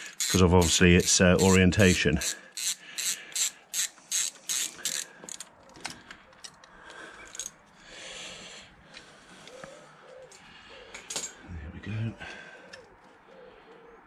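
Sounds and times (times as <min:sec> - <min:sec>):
socket ratchet clicking: 0:00.0 - 0:05.5.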